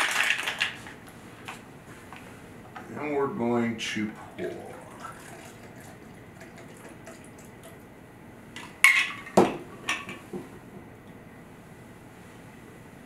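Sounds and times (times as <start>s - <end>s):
liquid trickling into glass: 4.4s - 7.7s.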